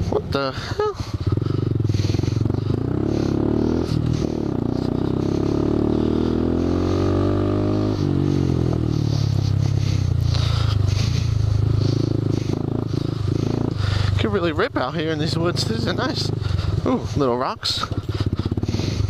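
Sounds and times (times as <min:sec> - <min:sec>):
motorcycle engine pulling hard: 0:00.0 - 0:19.0.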